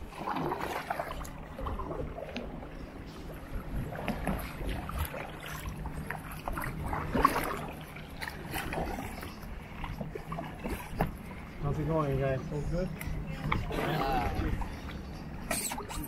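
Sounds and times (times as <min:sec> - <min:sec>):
kayak paddles splashing in water: 0:00.0 - 0:12.3.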